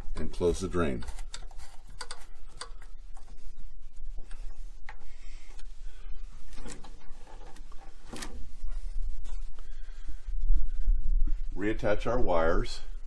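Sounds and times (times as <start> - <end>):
steady low hum: 0.0 - 13.0
clicks and knocks of handling: 0.1 - 3.3.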